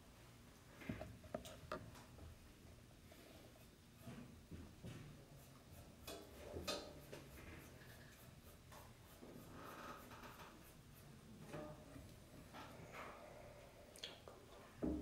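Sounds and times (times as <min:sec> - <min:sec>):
soft scratching: 0:03.1 - 0:13.4.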